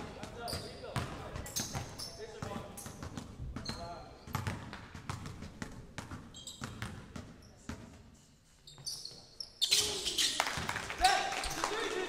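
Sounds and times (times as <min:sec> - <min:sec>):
basketball bouncing on wooden floor: 0:00.6 - 0:08.0
short high squeaks: 0:08.7 - 0:10.4.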